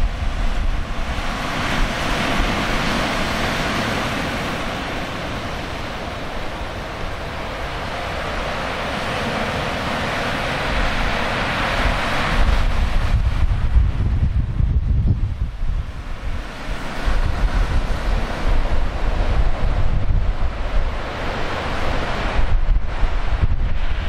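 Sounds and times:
heavy surf breaking: 0:00.0 - 0:24.0
wind buffeting microphone: 0:00.0 - 0:24.0.

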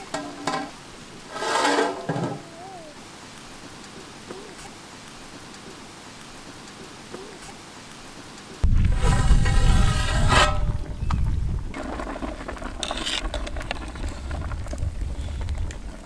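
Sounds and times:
wood fire crackling: 0:00.0 - 0:16.0
metal pot lid clattering: 0:00.1 - 0:02.4.

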